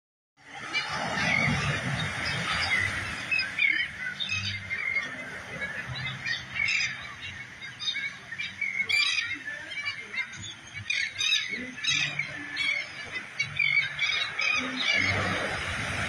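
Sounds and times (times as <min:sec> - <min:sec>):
seabirds calling: 0:00.4 - 0:16.0.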